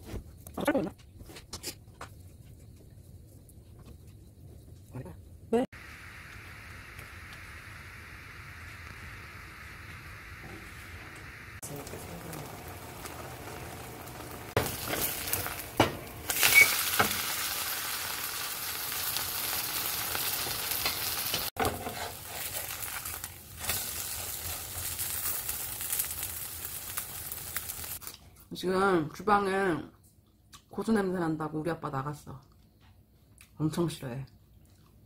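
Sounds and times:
batter sizzling in a pan: 5.8s - 28.1s.

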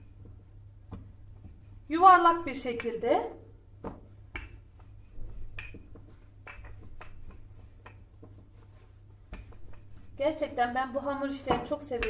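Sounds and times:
rolling pin rubbing on dough: 4.1s - 12.0s.

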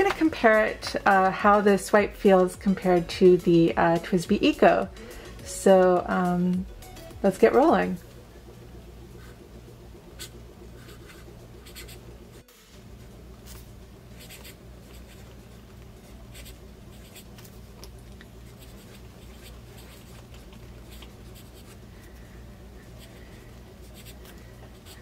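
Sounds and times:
pen nib scratching on paper: 10.2s - 12.0s, 13.5s - 17.6s, 18.4s - 21.8s, 23.8s - 25.0s.

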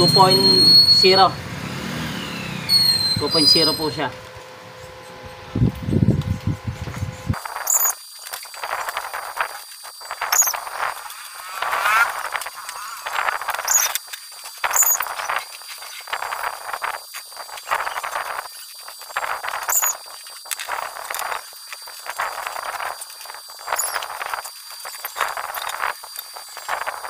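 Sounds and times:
welding arc crackling: 5.6s - 27.0s.

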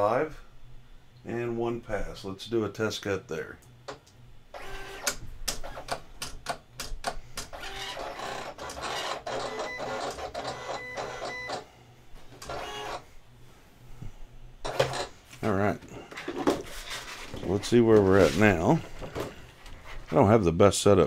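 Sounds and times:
cutting machine motors whirring: 4.5s - 6.0s, 7.5s - 11.6s, 12.4s - 13.0s.

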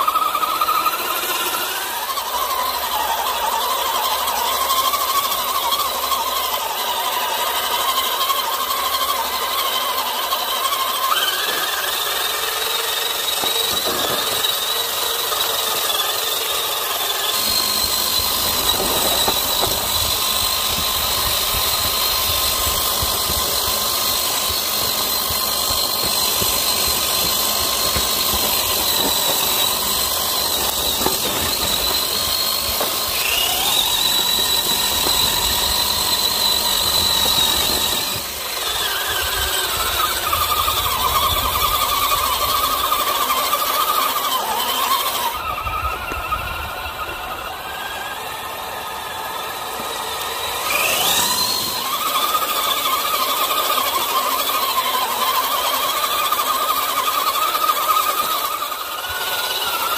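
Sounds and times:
electric motor whine: 0.0s - 59.9s.

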